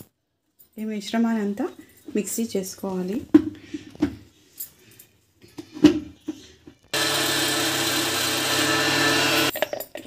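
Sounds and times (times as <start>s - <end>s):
electric mixer grinder running: 6.9s - 9.6s.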